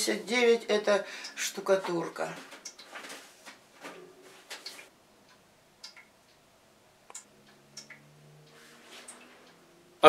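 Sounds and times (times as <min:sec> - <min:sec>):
faint clicks and ticks: 0:02.4 - 0:03.1, 0:04.6 - 0:09.6.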